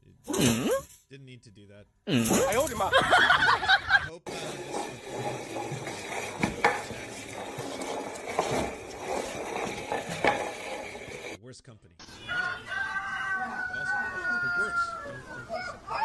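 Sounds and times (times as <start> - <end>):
plant dragged across tiled floor: 4.3 - 11.4.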